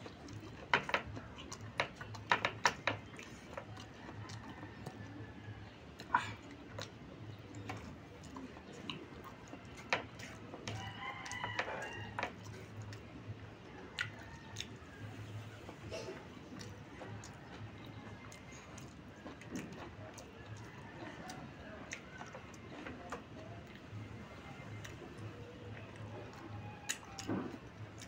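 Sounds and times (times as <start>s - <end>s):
eating clicks and smacks: 0.0s - 28.0s
rooster crowing: 10.7s - 12.4s.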